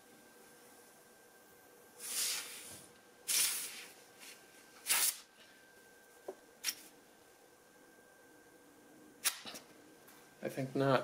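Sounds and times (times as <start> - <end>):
compressed air blasts hissing: 2.0 - 3.9, 4.8 - 5.3.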